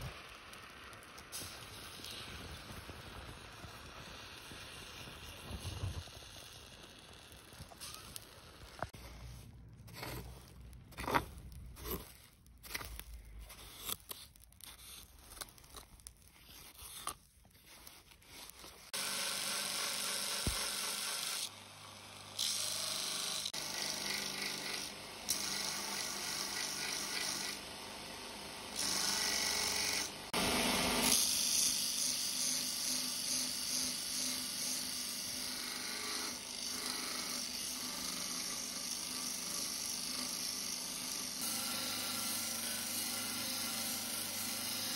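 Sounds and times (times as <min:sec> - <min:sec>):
crackles and scrapes: 0:00.0 - 0:19.0
belt grinder grinding metal: 0:18.6 - 0:21.5, 0:22.2 - 0:27.7, 0:28.7 - 0:44.9.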